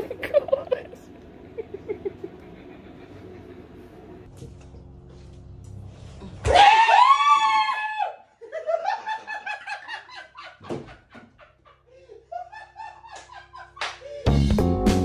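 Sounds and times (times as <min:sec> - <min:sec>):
low steady hum: 0:00.0 - 0:06.6
person screaming: 0:06.4 - 0:08.2.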